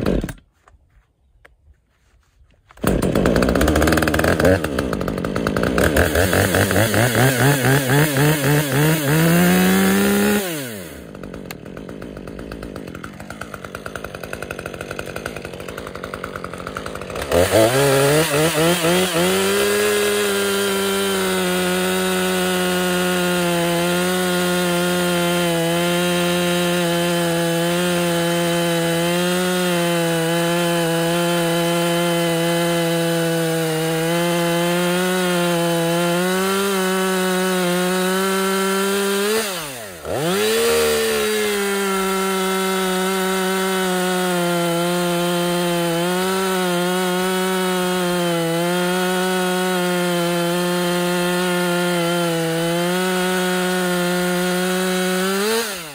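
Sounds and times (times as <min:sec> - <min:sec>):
chainsaw cutting log: 0:00.0 - 0:00.8, 0:02.6 - 0:55.9.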